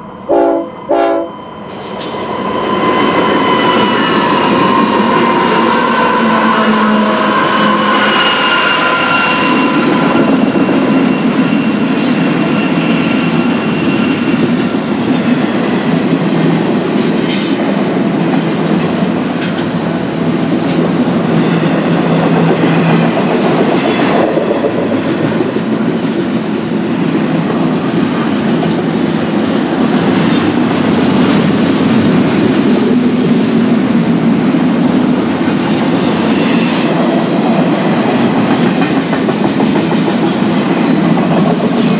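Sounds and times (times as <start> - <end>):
train wheel squeal: 0.0 - 17.6, 20.7 - 28.3, 30.0 - 31.5, 35.4 - 41.9
freight train wheels clicking: 7.3 - 41.9.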